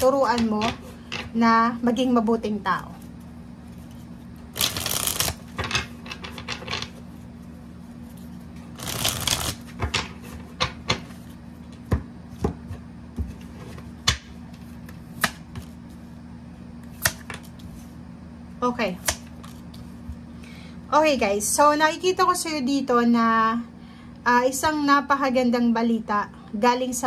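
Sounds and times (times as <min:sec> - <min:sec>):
cards shuffling: 0:03.8 - 0:05.6, 0:08.8 - 0:09.8
cards clicking and snapping: 0:04.6 - 0:05.4, 0:08.8 - 0:09.6.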